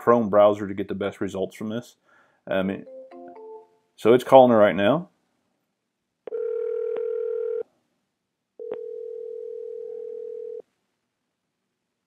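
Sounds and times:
phone ringback tone: 6.3s - 7.6s, 8.6s - 10.6s.

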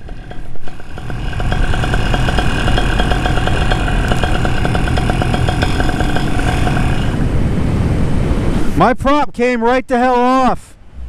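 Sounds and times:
paramotor engine running: 0.0s - 7.8s.

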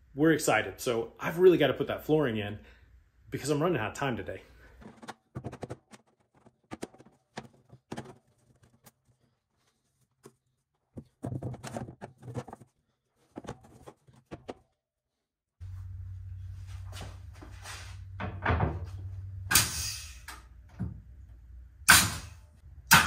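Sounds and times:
plank handled and set down: 4.8s - 8.8s, 11.0s - 12.7s.

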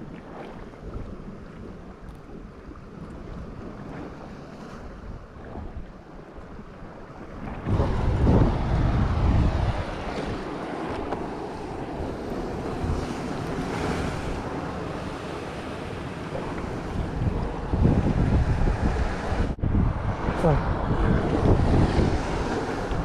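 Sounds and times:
surf washing against rocks: 0.0s - 23.0s
wind buffeting microphone: 4.8s - 23.0s.

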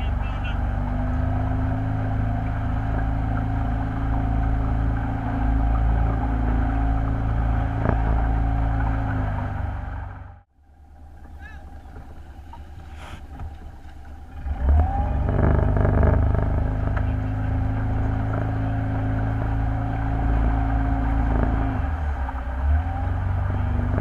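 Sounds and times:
motorboat engine running: 0.0s - 24.0s.

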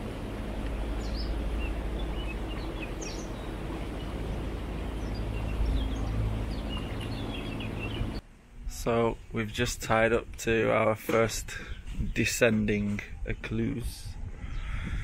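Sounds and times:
boat motor humming: 0.0s - 8.2s
small birds chirping: 0.6s - 8.2s.

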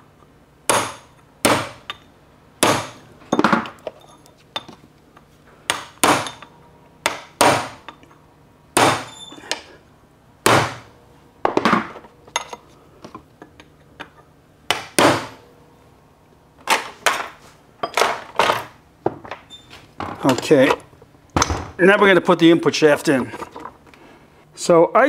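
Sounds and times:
hammer striking steel punch: 0.7s - 2.0s, 2.6s - 3.4s, 5.7s - 8.0s, 8.8s - 9.6s, 10.4s - 10.9s, 14.7s - 15.4s.

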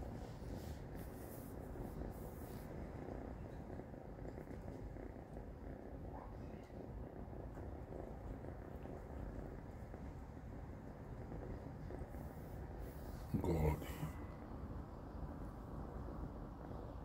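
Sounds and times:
kitten purring: 0.0s - 17.0s.

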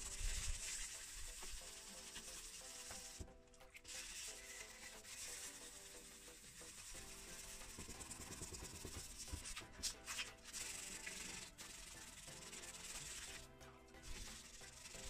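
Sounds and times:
sandpaper rubbing on plastic: 0.0s - 15.0s.

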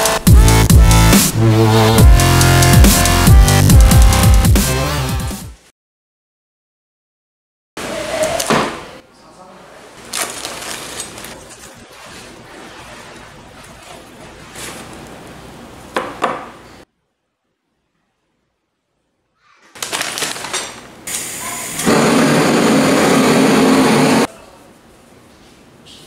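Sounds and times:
plastic packaging crinkling: 10.0s - 11.4s, 19.8s - 21.0s.

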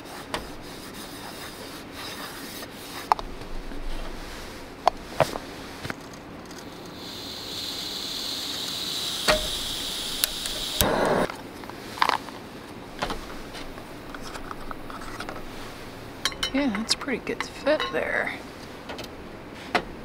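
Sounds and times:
gas stove hissing: 6.6s - 11.3s.

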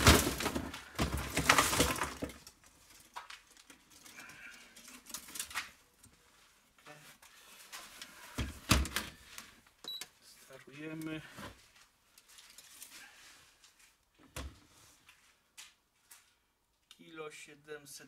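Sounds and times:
crate knocking down: 0.0s - 2.4s
plastic crate handled: 0.0s - 2.6s.

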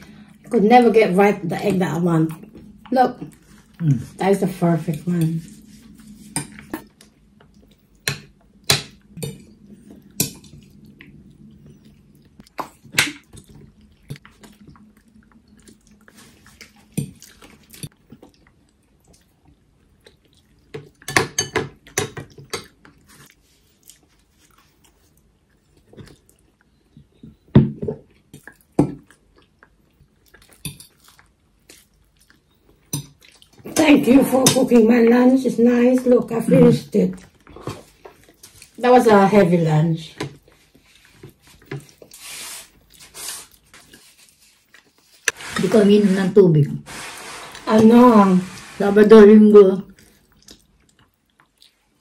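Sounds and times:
chewing: 9.6s - 21.1s, 21.8s - 33.7s, 49.9s - 52.0s.

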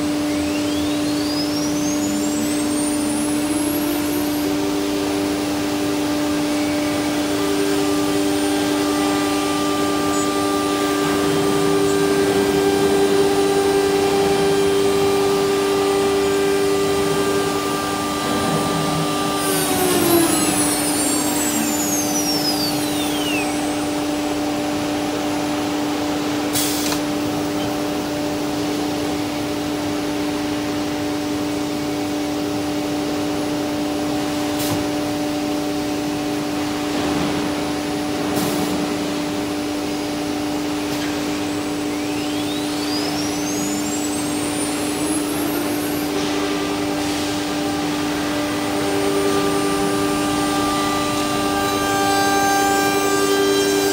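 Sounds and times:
router spindle whining: 0.0s - 28.5s, 40.5s - 53.9s
extraction machine drone: 0.0s - 53.9s.

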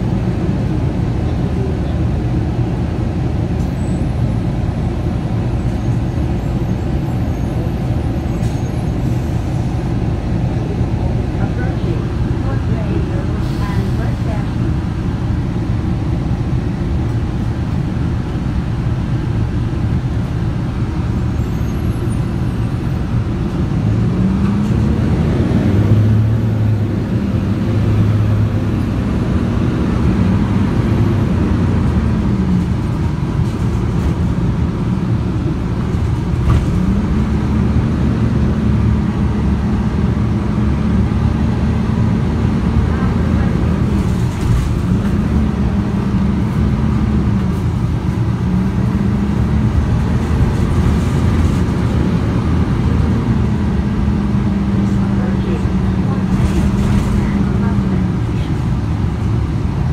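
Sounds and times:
bus engine: 0.0s - 59.9s
road noise: 0.0s - 59.9s.

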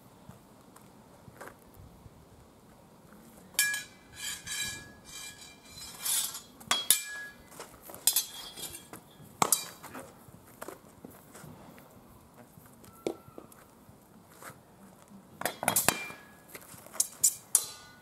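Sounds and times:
metal swords clashing: 3.6s - 9.8s, 15.4s - 16.4s, 17.0s - 18.0s.

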